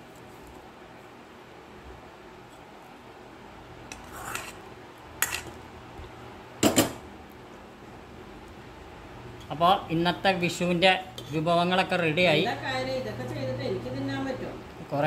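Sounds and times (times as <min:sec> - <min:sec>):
spoon scraping steel cookware: 0:03.9 - 0:04.6, 0:05.2 - 0:05.5.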